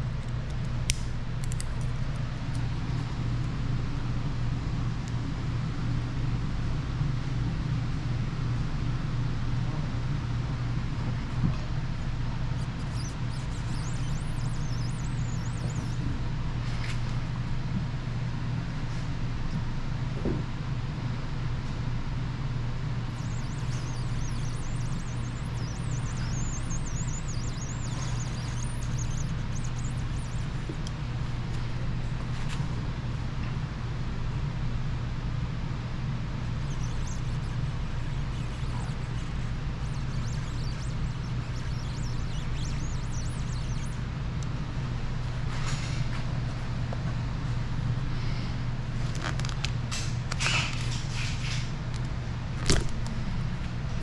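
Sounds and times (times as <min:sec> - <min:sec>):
steady low hum: 0:00.0 - 0:54.0
warbling high-pitched whistle: 0:12.5 - 0:16.2, 0:23.0 - 0:32.3, 0:36.4 - 0:44.2
high-pitched squeaks: 0:12.6 - 0:16.0, 0:23.1 - 0:32.2, 0:36.4 - 0:44.0.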